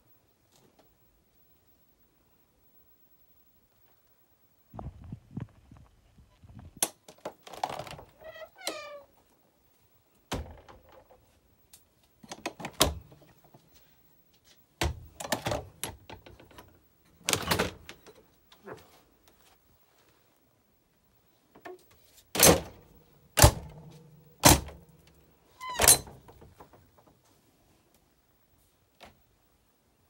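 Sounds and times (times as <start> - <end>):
door squeak: 7.5 - 9.1, 25.6 - 26.6.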